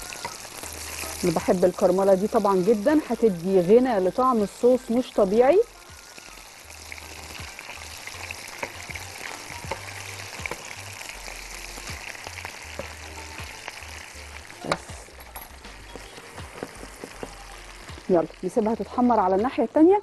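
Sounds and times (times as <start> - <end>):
meat sizzling in a pan: 0.0 - 20.0
utensils clicking against pan: 8.5 - 8.9.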